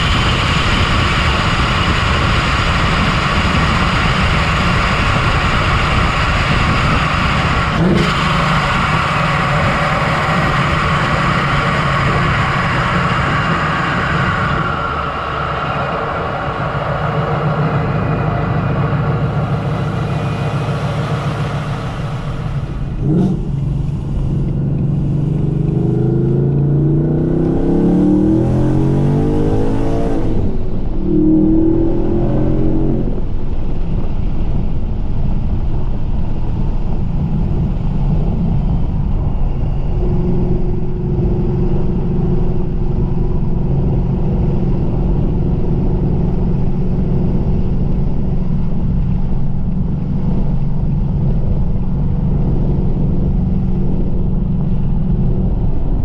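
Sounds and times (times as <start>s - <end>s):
car engine accelerating: 0.0s - 56.0s.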